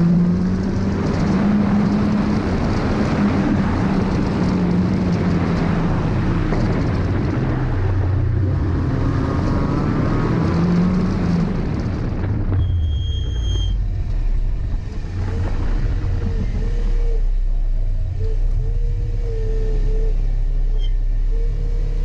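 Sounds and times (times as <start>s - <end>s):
car engine running low: 0.0s - 22.0s
high beep: 12.6s - 13.8s.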